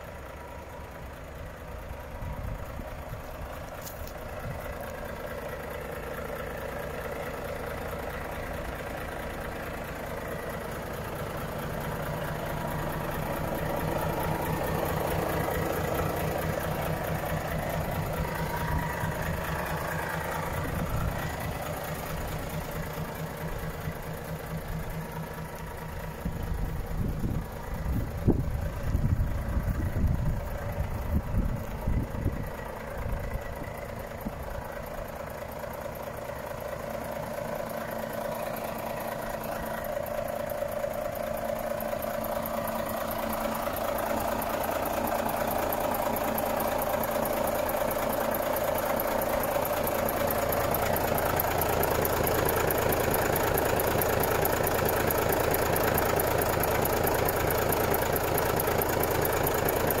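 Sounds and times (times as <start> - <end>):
truck diesel engine idling: 0.0 - 60.0
wind buffeting microphone: 26.3 - 32.4.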